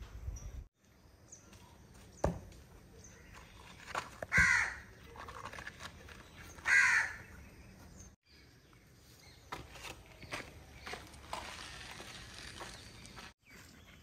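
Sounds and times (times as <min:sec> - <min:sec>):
harsh bird calls: 0:06.1 - 0:08.5.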